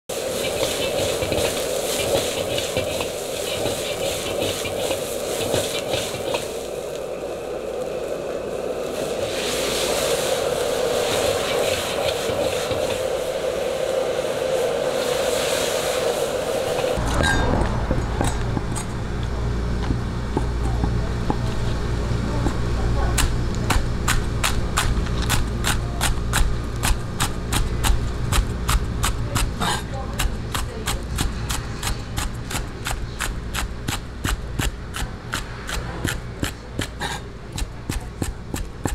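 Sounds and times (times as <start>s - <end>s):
low hum: 0.1s - 37.6s
gas burner rushing: 0.1s - 38.9s
onions sizzling in a wok: 0.1s - 38.9s
metal ladle scraping a wok: 0.2s - 6.6s
cleaver chopping on wooden block: 23.2s - 38.9s.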